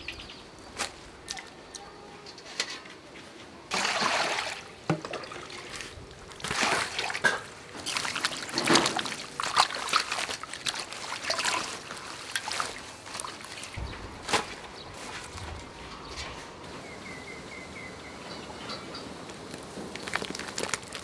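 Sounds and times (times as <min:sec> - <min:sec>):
water splashing in metal basin: 0:03.7 - 0:13.8.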